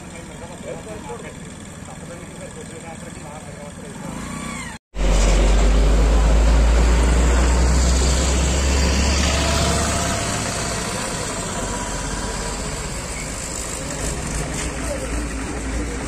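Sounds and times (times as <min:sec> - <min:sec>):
auto-rickshaw passing: 0:00.0 - 0:16.0
lorry engine rumble: 0:00.0 - 0:16.0
car passing: 0:05.0 - 0:13.8.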